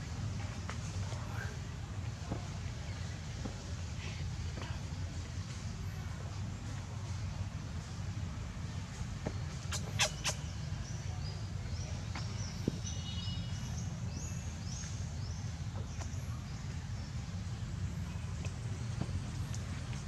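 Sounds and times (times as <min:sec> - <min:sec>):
faint short high chirps: 0:09.7 - 0:10.6.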